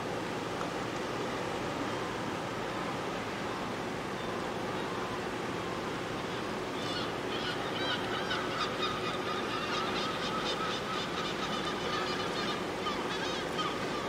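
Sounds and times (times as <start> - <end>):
outdoor background noise: 0.0 - 14.0
bird calling: 6.3 - 14.0.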